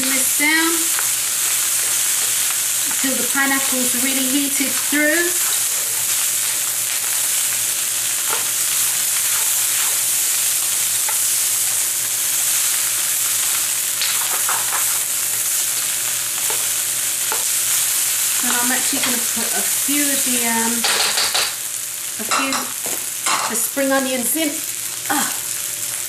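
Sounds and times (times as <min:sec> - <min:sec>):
rice sizzling in a wok: 0:00.0 - 0:26.0
spatula scraping a wok: 0:04.7 - 0:07.5, 0:08.1 - 0:11.5.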